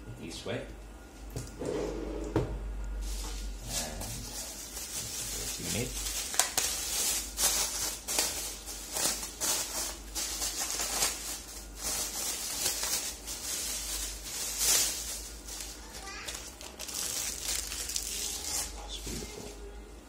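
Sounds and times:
plastic bag crinkling: 0:03.0 - 0:19.0.

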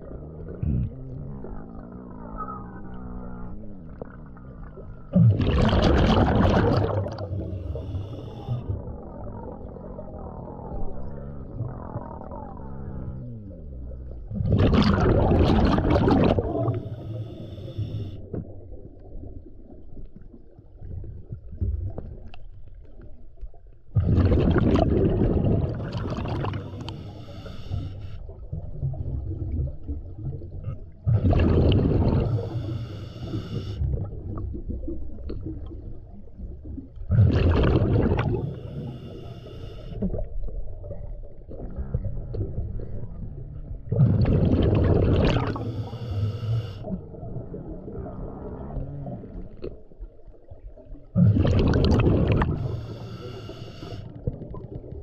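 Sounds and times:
exhaled bubbles rushing: 0:00.0 - 0:13.0, 0:14.0 - 0:17.5, 0:23.9 - 0:39.3, 0:39.9 - 0:46.2, 0:46.8 - 0:55.0
gurgling rumble underwater: 0:00.0 - 0:55.0
scuba regulator breathing: 0:07.3 - 0:08.7, 0:16.6 - 0:18.2, 0:25.7 - 0:28.3, 0:32.1 - 0:33.8, 0:38.2 - 0:40.0, 0:45.3 - 0:46.9, 0:52.3 - 0:54.2.

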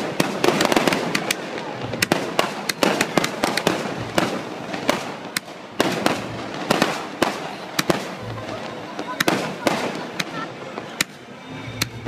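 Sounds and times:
fireworks cracking and banging: 0:00.0 - 0:12.0.

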